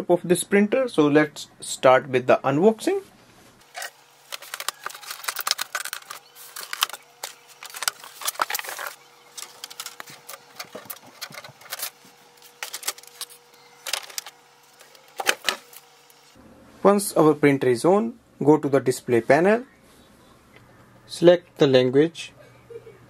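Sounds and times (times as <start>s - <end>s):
faint steady hum: 0.0s - 23.0s
packing material rustling: 3.6s - 16.2s
plastic parts clicking: 3.8s - 11.9s.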